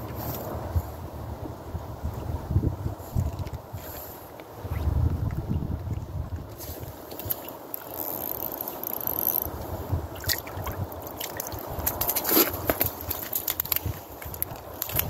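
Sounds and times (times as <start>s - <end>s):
water splashing and sloshing: 3.2s - 15.0s.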